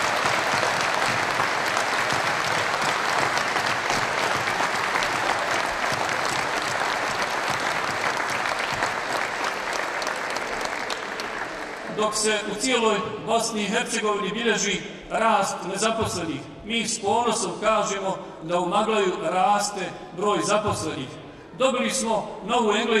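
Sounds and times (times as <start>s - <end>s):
crowd applauding: 0.0s - 12.5s.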